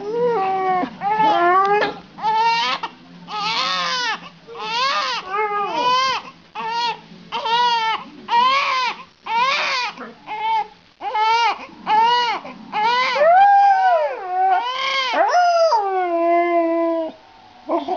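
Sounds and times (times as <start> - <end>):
baby crying: 0.0 - 13.3, 14.1 - 15.8
dog howling: 12.0 - 17.9.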